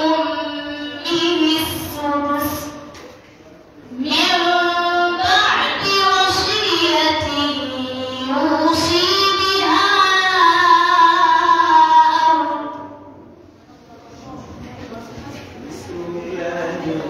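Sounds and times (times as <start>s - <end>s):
girl chanting into microphone: 0.0s - 3.0s, 3.9s - 13.3s.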